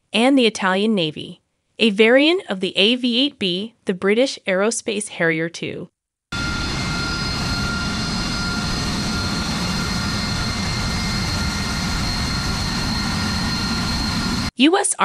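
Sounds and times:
jet engine running: 0:06.4 - 0:14.5.

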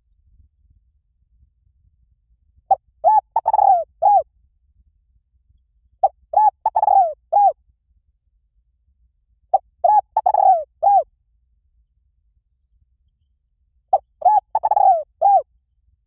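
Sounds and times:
dove cooing: 0:03.0 - 0:04.2, 0:06.0 - 0:07.6, 0:09.6 - 0:11.0, 0:13.9 - 0:15.4.

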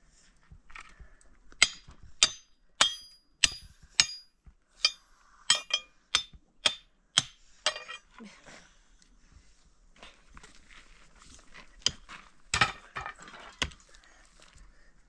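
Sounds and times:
ringing metal hammer strikes: 0:01.6 - 0:08.0.

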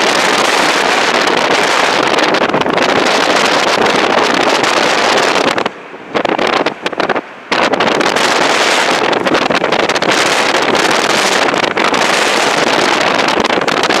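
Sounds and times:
jet engines at takeoff thrust: 0:00.0 - 0:14.0
wind buffeting microphone: 0:00.0 - 0:14.0.

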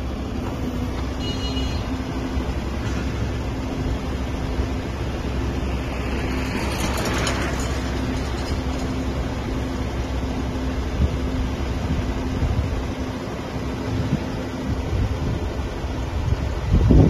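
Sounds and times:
diesel engine and hydraulic pump: 0:00.0 - 0:17.0.

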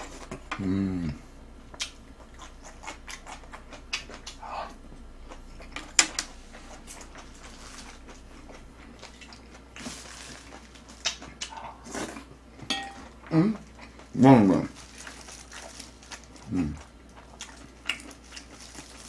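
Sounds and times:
chewing and mouth smacking: 0:01.7 - 0:12.4, 0:15.0 - 0:19.0.

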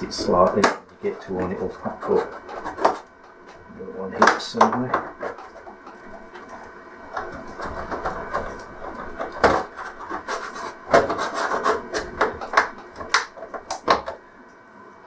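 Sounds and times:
plastic tool scraping plastic case: 0:00.1 - 0:03.1, 0:07.2 - 0:13.6.

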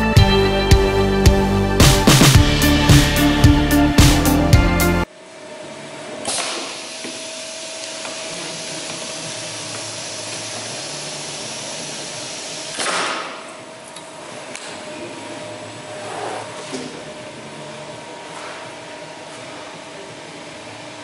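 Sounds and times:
edge banding machine hissing: 0:06.3 - 0:13.4.

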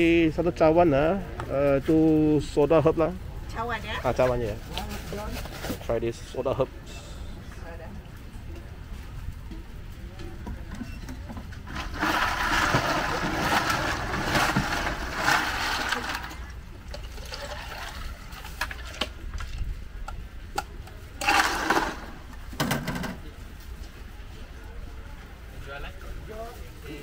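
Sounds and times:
drink pouring into cup: 0:11.7 - 0:19.0.

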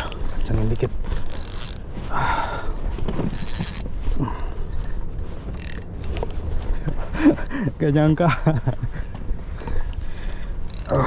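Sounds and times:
fishing reel cranking: 0:01.2 - 0:01.9, 0:03.3 - 0:03.9, 0:05.5 - 0:06.3, 0:07.3 - 0:07.5, 0:10.6 - 0:11.0.

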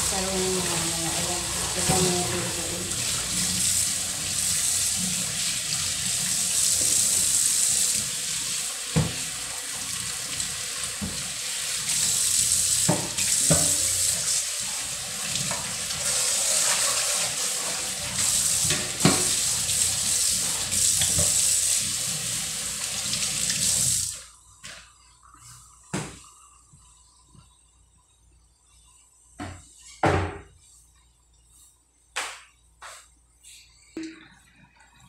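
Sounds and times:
faucet running into steel sink: 0:00.0 - 0:24.2
dishes rinsed under water: 0:00.0 - 0:26.3.

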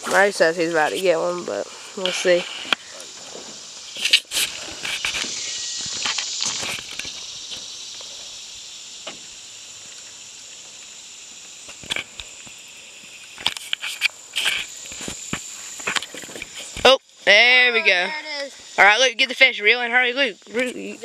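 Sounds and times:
rustling: 0:00.0 - 0:08.5, 0:09.2 - 0:16.9
insects droning: 0:00.0 - 0:21.0.

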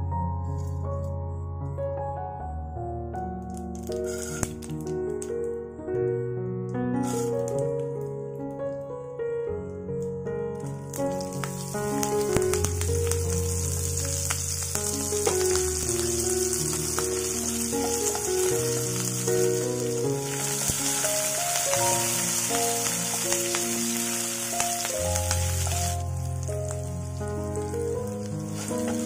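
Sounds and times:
hot oil sizzling: 0:03.6 - 0:05.0, 0:07.0 - 0:07.8, 0:10.6 - 0:29.0.

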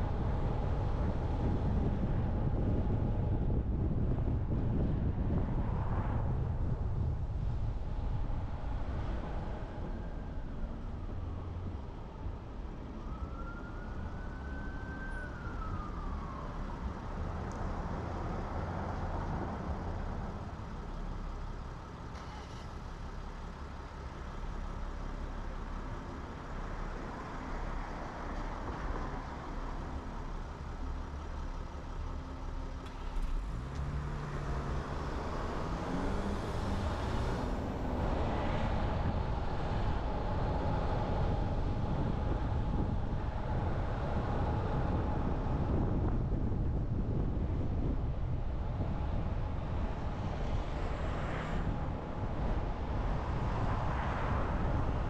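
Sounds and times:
road noise of car driving: 0:00.0 - 0:55.0
emergency siren wailing: 0:10.7 - 0:17.3.

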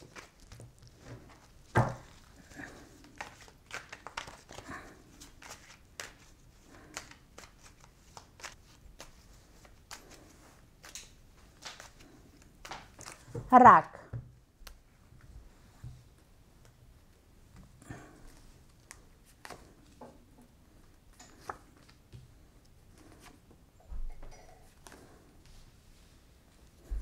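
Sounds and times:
cards being shuffled: 0:00.0 - 0:13.3.

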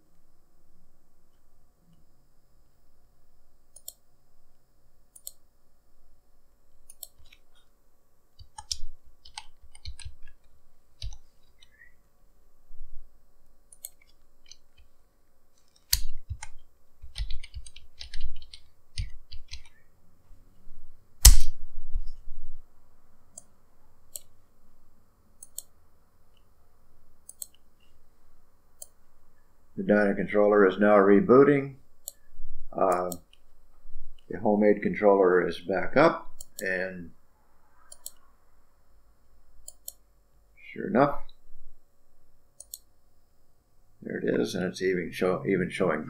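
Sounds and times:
mouse clicking: 0:03.7 - 0:04.0, 0:05.2 - 0:05.4, 0:06.9 - 0:07.4, 0:08.4 - 0:11.8, 0:13.7 - 0:14.9, 0:15.7 - 0:19.8, 0:25.4 - 0:25.7, 0:27.3 - 0:27.6, 0:37.9 - 0:38.2, 0:39.6 - 0:40.0, 0:42.6 - 0:42.9
typing on keyboard: 0:08.4 - 0:10.4, 0:15.9 - 0:19.7.

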